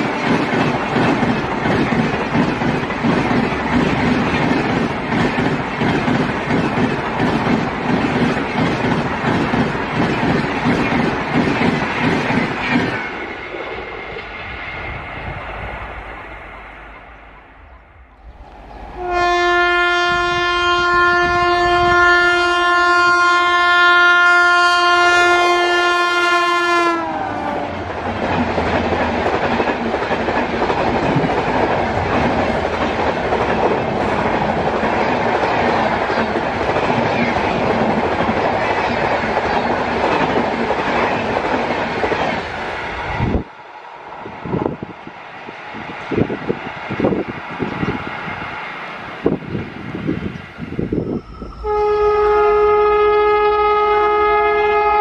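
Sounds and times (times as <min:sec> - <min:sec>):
train coaches rushing past: 0:00.0 - 0:23.7, 0:25.0 - 0:55.0
train horn: 0:18.9 - 0:27.8, 0:51.6 - 0:55.0.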